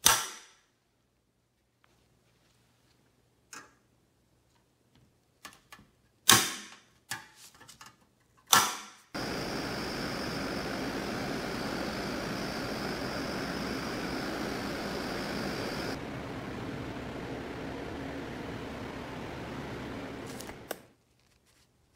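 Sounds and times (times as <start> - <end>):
rush of air noise: 9.2 - 20.8.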